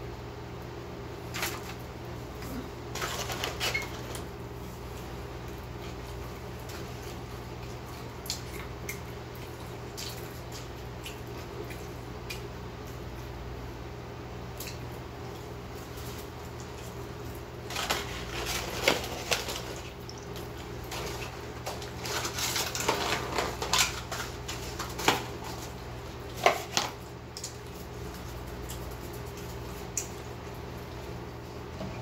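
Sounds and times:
low room hum: 0.0s - 32.0s
paper packaging crackling: 2.9s - 4.3s, 17.6s - 29.9s.

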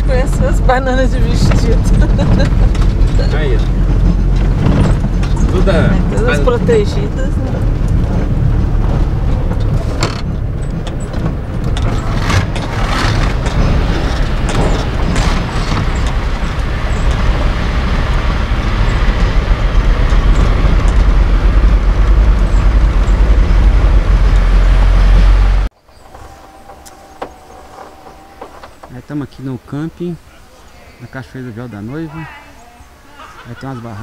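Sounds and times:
vehicle engine and road noise: 0.0s - 34.0s.

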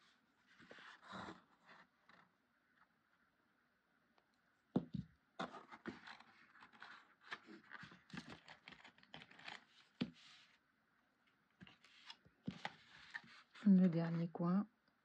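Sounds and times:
cardstock rustling and scraping: 5.4s - 10.6s, 11.6s - 13.8s.

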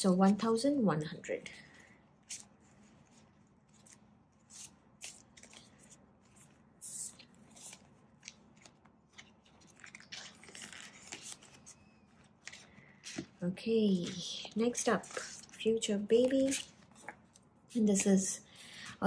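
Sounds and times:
plastic banknotes rustling: 2.3s - 13.4s.

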